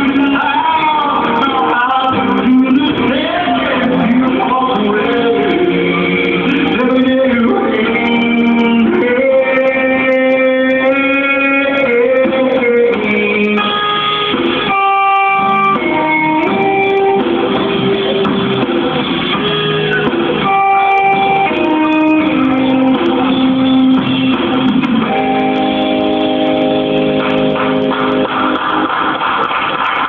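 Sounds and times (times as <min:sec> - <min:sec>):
instrumental guitar music: 0:00.0 - 0:29.9.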